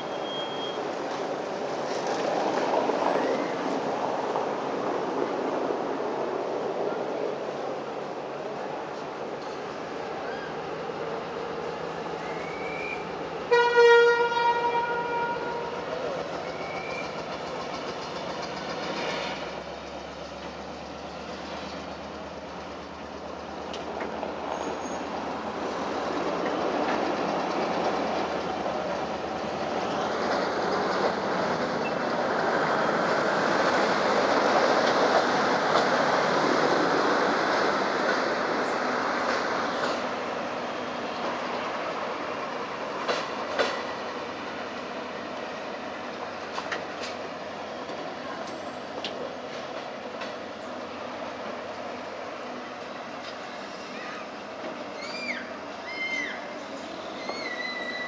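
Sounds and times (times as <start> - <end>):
train coaches rolling on track: 0.0 - 58.0
train horn blast: 13.5 - 15.9.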